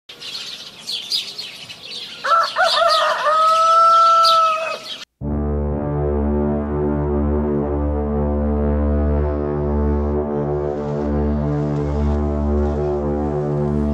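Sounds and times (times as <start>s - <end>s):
small birds chirping: 0.1s - 5.1s
rooster crowing: 2.1s - 5.0s
music with low bass: 5.2s - 13.9s.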